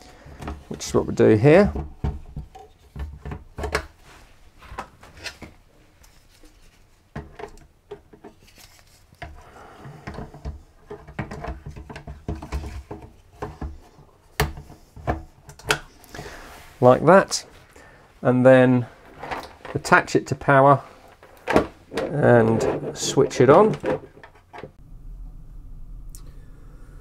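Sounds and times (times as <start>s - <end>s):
plastic clicks and knocks: 10.0s - 13.8s
plastic trays scraping: 18.6s - 24.8s.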